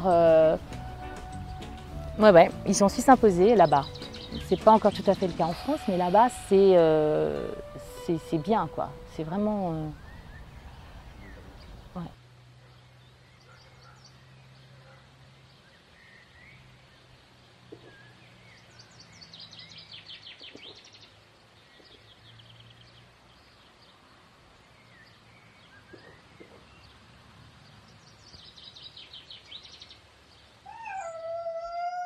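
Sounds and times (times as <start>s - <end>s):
songbirds chirping trills: 0.0s - 32.0s
drawn-out pitched bird call: 0.5s - 12.1s, 30.6s - 32.0s.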